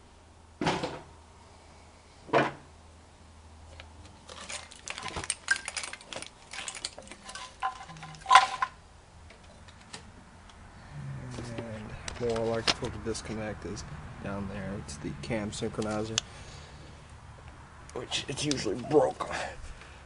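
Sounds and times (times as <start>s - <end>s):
plastic fittings clicking and clattering: 3.7s - 8.7s.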